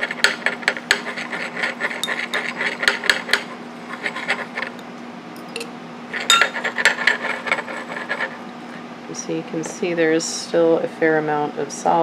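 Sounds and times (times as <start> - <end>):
steady low hum: 0.0 - 12.0
glass flask scraping on hot plate: 0.7 - 3.0, 6.2 - 7.0.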